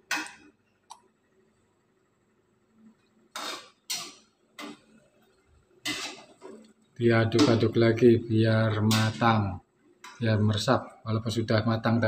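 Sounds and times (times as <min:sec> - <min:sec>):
spatula scraping a wok: 0:05.8 - 0:06.6.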